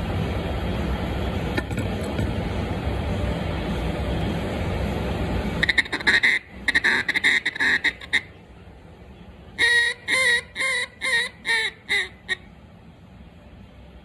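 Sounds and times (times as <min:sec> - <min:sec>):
duck call quacks: 0:05.6 - 0:08.3, 0:09.6 - 0:12.4
duck call chattering: 0:05.6 - 0:08.4, 0:09.6 - 0:12.5.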